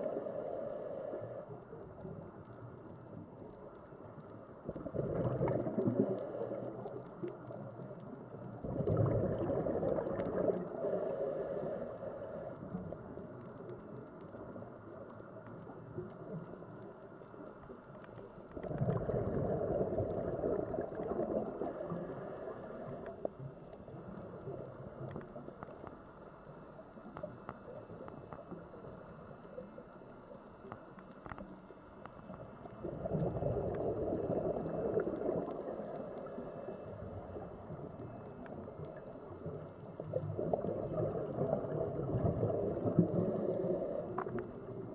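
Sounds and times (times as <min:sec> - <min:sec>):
faint clicks: 0:00.0 - 0:44.9
underwater exhale bubbling: 0:04.6 - 0:07.8, 0:08.4 - 0:13.1, 0:18.5 - 0:25.8, 0:32.3 - 0:44.9.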